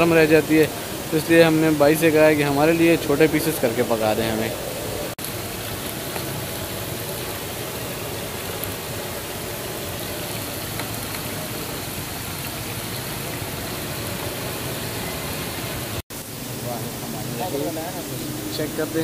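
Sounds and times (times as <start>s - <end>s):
fish sizzling in oil: 5.2s - 19.0s.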